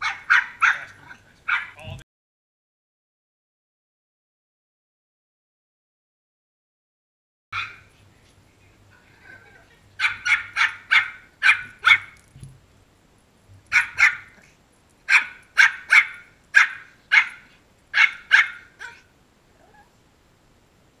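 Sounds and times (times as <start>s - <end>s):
small dog yapping: 0.0s - 2.0s, 7.6s - 7.9s, 9.1s - 12.3s, 13.7s - 19.9s.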